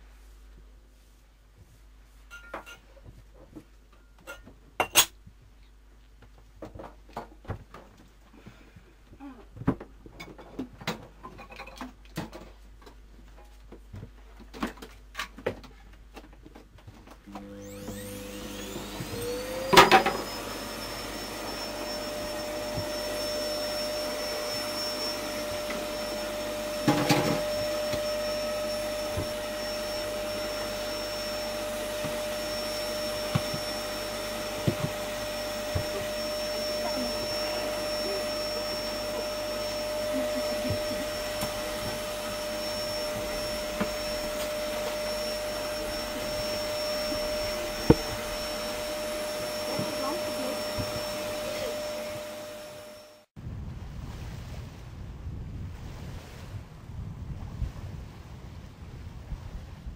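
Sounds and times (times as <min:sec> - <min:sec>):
small electric motor whining: 0:17.3 - 0:53.3.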